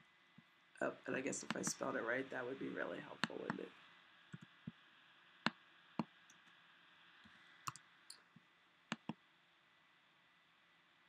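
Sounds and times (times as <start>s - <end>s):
keyboard and mouse clicks: 7.7s - 8.2s, 8.9s - 9.2s.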